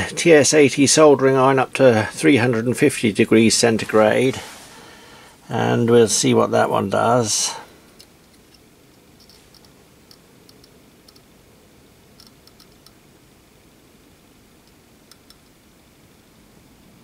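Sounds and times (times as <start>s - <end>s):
faint light ticks and clicks: 7.9s - 11.3s, 12.2s - 13.0s, 14.6s - 15.6s.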